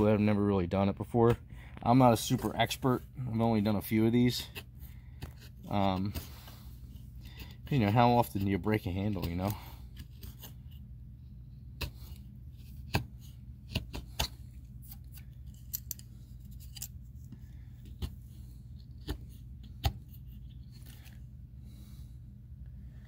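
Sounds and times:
knife scraping wood: 4.4s - 10.8s.

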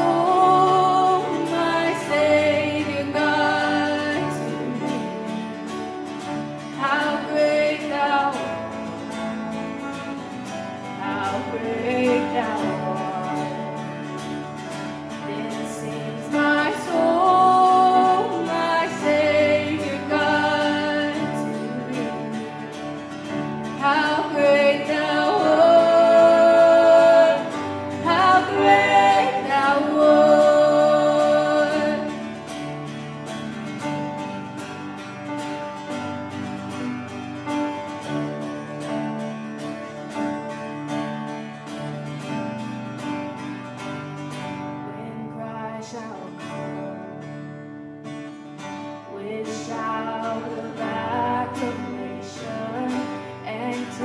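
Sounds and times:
backing voices singing: 0.0s - 5.1s, 15.3s - 22.6s, 23.8s - 32.4s
woman singing lead: 0.0s - 32.8s, 44.6s - 47.3s, 48.8s - 54.0s
acoustic guitar: 0.0s - 54.0s
keyboard: 0.0s - 54.0s.

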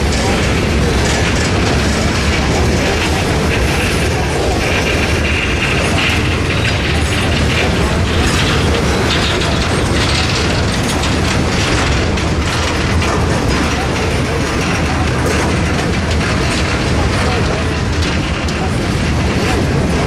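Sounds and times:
metallic knocking and clatter: 0.0s - 20.0s
train wheels rumbling on rails: 0.0s - 20.0s.

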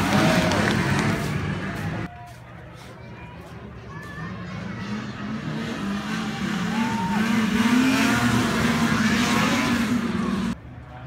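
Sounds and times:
snowmobile engines at full throttle: 5.2s - 10.6s.

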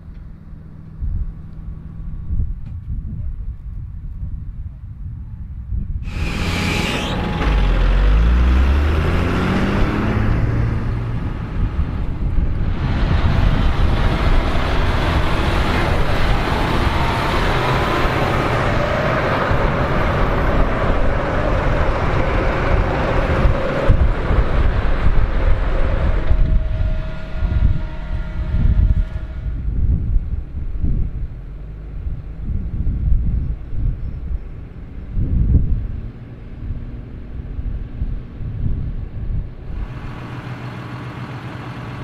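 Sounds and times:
tractor diesel engine revving: 6.0s - 30.2s, 39.7s - 42.0s.

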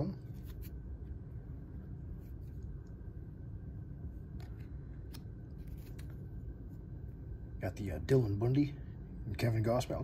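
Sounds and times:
steady low hum: 0.0s - 10.0s
cards sliding and flipping: 0.2s - 0.8s, 4.3s - 6.3s.

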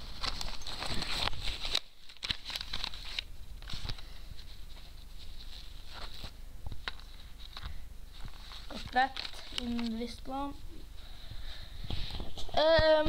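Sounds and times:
fabric rustling: 0.0s - 13.0s.

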